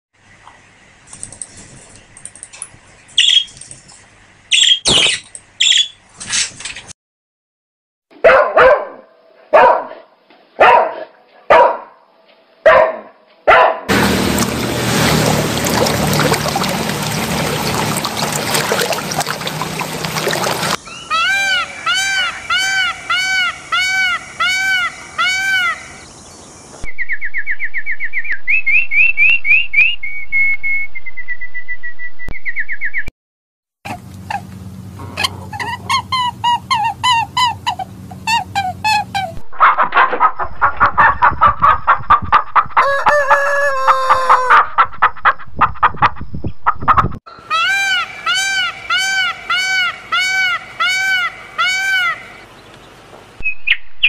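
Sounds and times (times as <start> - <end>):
trilling bird song: 3.0 - 6.0, 20.8 - 33.1, 47.3 - 54.0
bird chirps: 3.1 - 6.0, 20.8 - 33.1, 52.1 - 54.0
quick bird calls: 3.2 - 3.8, 4.5 - 6.0
dog barking: 8.2 - 12.0, 12.6 - 13.9.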